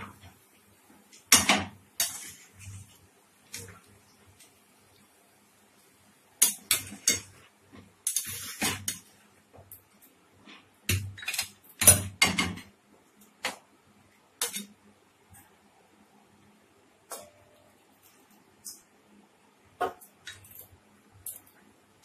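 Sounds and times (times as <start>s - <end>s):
metal utensils scraping a pan: 1.4s - 2.9s, 6.4s - 7.4s, 8.0s - 9.1s.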